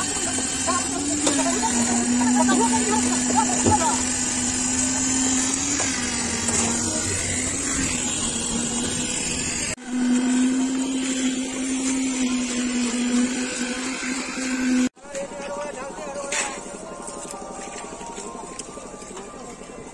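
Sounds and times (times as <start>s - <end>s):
machinery motor droning: 0.0s - 19.9s.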